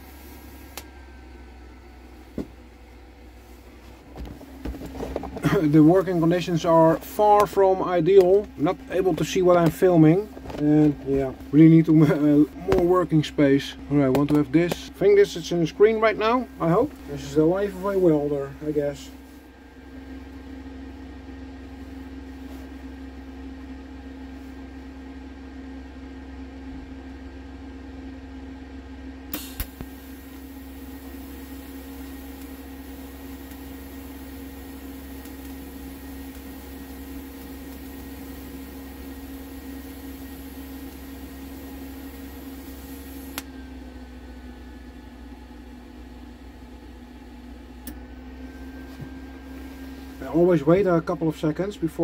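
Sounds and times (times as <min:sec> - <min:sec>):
welding arc hiss: 0:00.0 - 0:00.9, 0:05.4 - 0:10.3, 0:29.3 - 0:43.5
welder electrical hum: 0:00.0 - 0:52.0
welding arc striking crack: 0:29.3 - 0:30.5.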